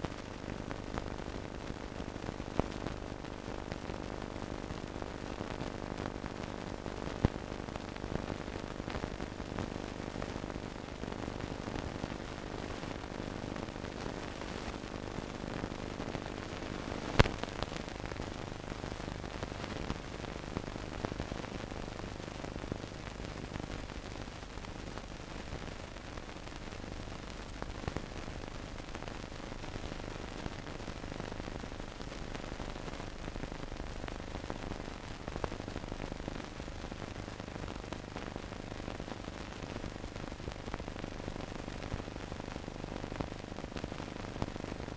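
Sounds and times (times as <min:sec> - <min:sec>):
film soundtrack hiss and crackle: 0:00.0 - 0:44.9.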